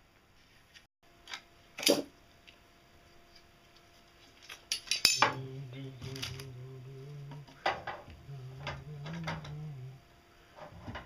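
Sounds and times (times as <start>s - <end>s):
steady low hum: 1.0s - 11.0s
metal parts clinking: 4.4s - 5.4s.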